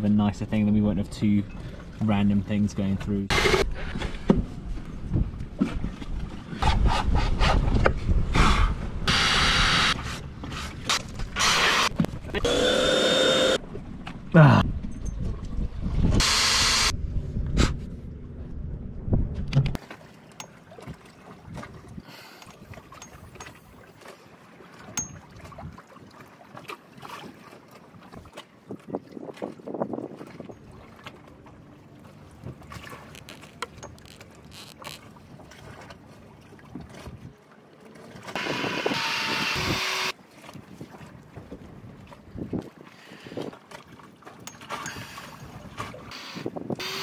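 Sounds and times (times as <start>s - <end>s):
low rumble: 16.9s - 19.8s.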